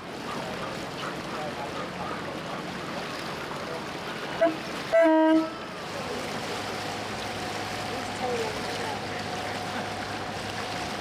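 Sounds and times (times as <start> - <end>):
low engine hum: 0.0 - 11.0
boat horn toot: 4.3 - 5.8.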